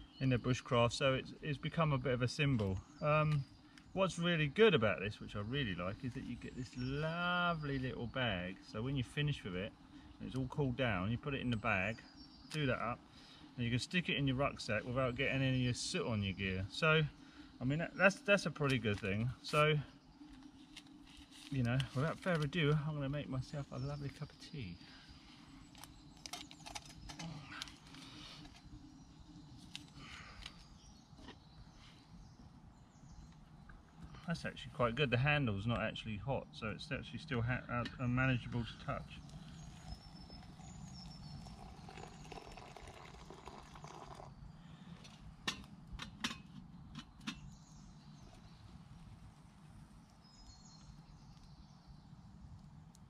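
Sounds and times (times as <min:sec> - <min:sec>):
faint high bird calls: 0:14.3 - 0:34.6
metal kettle clinks and knocks: 0:45.4 - 0:47.5.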